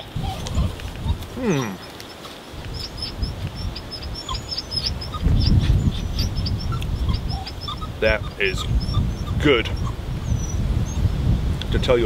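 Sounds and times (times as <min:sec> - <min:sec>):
small bird chirping rapidly: 0:01.8 - 0:11.1.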